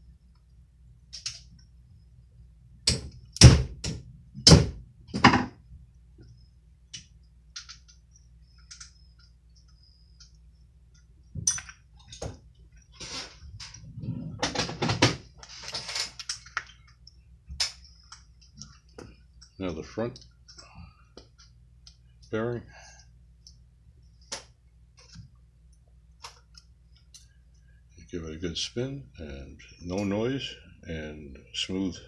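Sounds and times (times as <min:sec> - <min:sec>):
tools tapping and scraping metal: 0:06.9 - 0:19.6.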